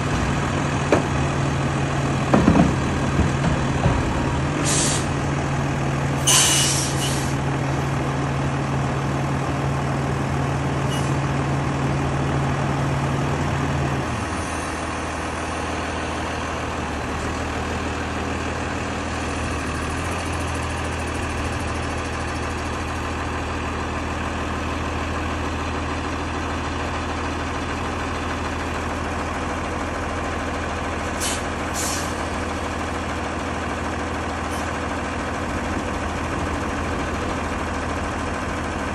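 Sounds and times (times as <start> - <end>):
diesel engine running: 0.0 - 38.9
air brake hiss: 4.6 - 5.1, 6.2 - 7.4, 31.2 - 32.2.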